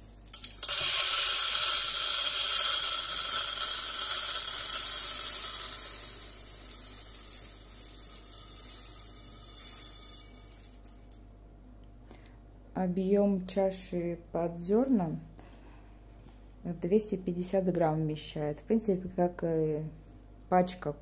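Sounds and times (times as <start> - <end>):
coffee beans pouring into grinder: 0.0 - 11.3.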